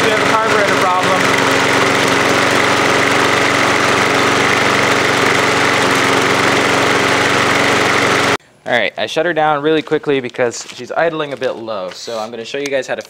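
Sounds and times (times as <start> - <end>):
lawn mower engine idling: 0.0 - 8.4.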